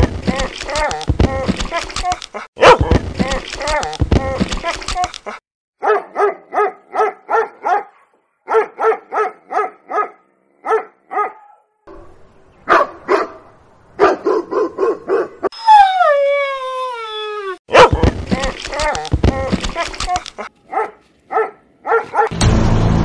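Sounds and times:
dog barking: 2.6 - 2.9, 5.8 - 11.8, 12.7 - 13.4, 14.0 - 15.5, 17.7 - 18.1, 20.7 - 22.3
dog howling: 15.5 - 17.6.

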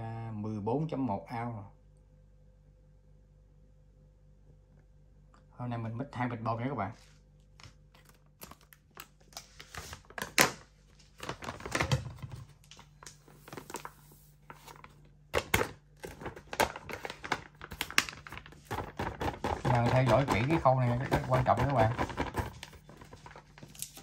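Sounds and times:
plastic bag crinkling: 7.9 - 24.0.

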